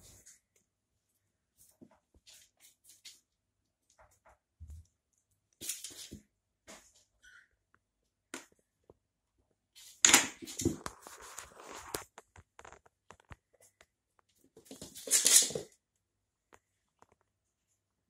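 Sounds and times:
cat paws scuffling on floor: 1.5s - 3.3s, 5.6s - 7.0s, 9.8s - 12.2s, 14.4s - 15.7s.

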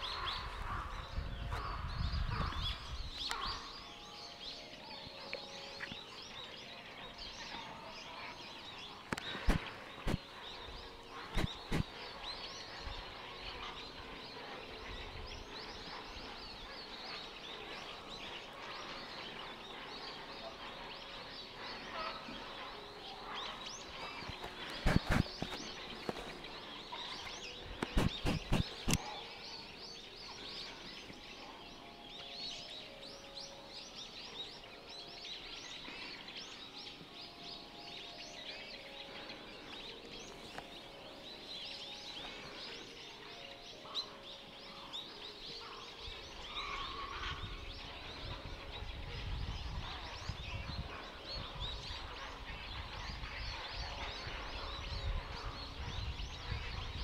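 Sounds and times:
herons calling: 7.2s - 29.2s.

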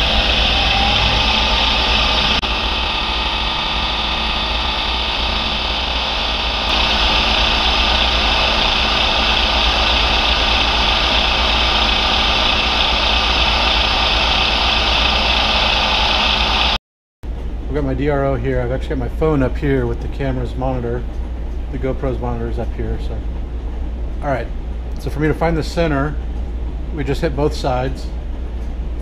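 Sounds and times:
milling machine motor whirring: 0.0s - 16.8s.

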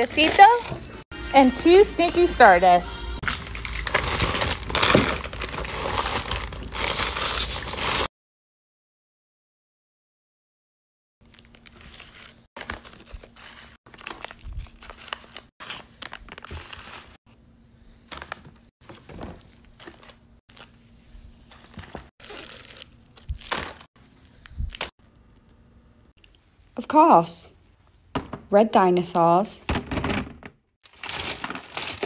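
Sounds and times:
plastic candy wrappers crinkling: 0.0s - 0.9s, 3.2s - 8.1s, 11.3s - 17.2s, 21.6s - 25.5s, 30.8s - 32.0s.

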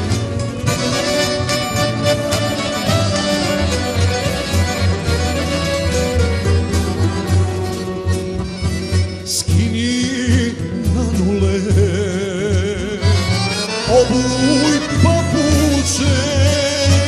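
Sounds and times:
accordions playing bass notes: 0.0s - 17.0s
man singing with vibrato: 9.2s - 17.0s.

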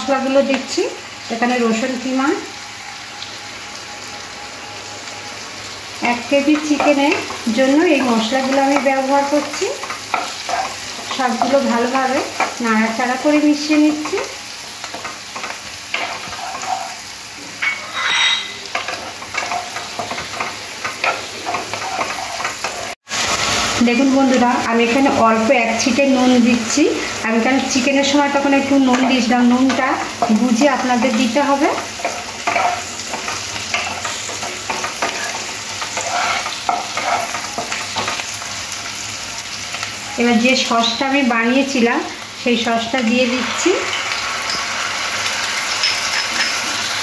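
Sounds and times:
vegetables sizzling in hot oil: 0.0s - 47.0s
wooden spatula scraping pan: 15.0s - 17.0s, 17.6s - 23.0s, 30.9s - 38.2s.

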